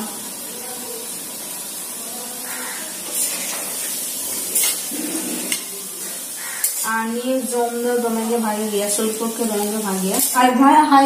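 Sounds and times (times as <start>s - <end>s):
batter sizzling in hot oil: 0.0s - 11.0s
metal spatula scraping pan: 3.1s - 5.7s, 6.4s - 6.9s, 10.1s - 10.4s.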